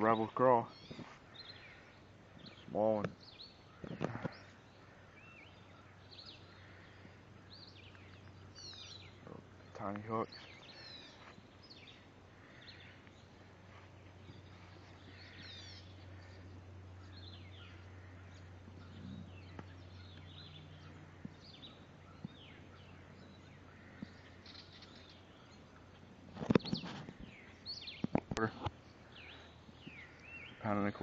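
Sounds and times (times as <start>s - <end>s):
birds chirping: 0.0s - 31.0s
low steady hum: 0.0s - 31.0s.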